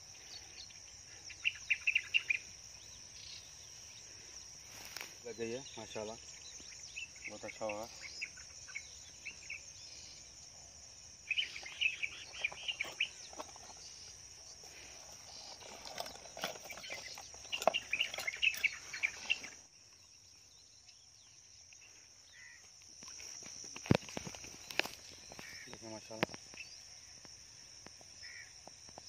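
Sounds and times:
high-pitched insect drone: 0.0 - 29.0
metal lures rattling in plastic box: 12.3 - 13.9, 14.9 - 19.4.

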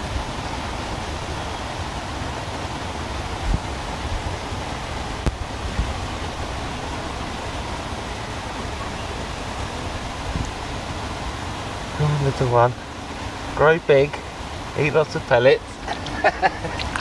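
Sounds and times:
wind noise on microphone: 0.0 - 13.6.

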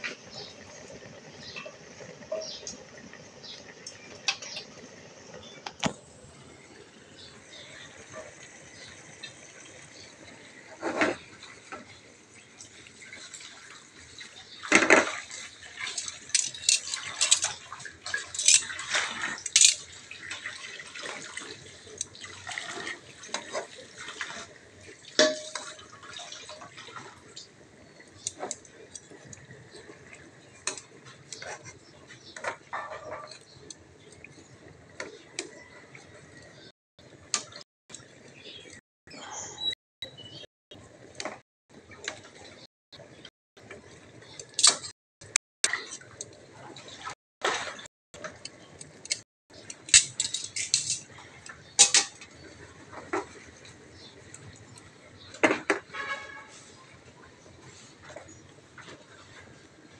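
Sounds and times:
faint sizzle: 0.0 - 36.7
fish frying in oil: 0.0 - 38.8, 43.6 - 59.9
metal tongs clinking on frying pan: 15.9 - 17.6, 18.2 - 18.7, 19.4 - 19.9, 49.1 - 51.1, 51.8 - 52.2.

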